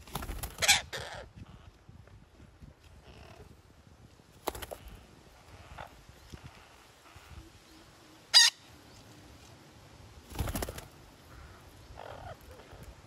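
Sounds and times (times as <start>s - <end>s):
wing rustling flutter: 0.0s - 0.7s, 10.2s - 11.1s
parakeet screeching: 8.4s - 8.6s.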